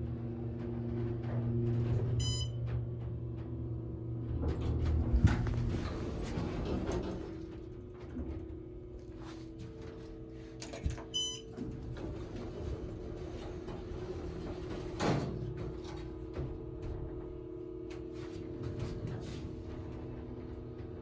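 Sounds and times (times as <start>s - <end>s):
elevator pump motor hum: 0.0s - 21.0s
elevator chime: 2.2s - 2.6s, 11.1s - 11.6s
elevator doors sliding open: 4.2s - 8.3s, 11.0s - 16.0s.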